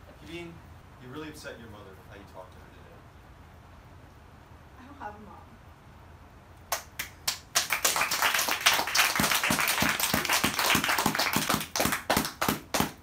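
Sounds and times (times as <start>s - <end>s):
hand clapping: 6.7s - 13.0s.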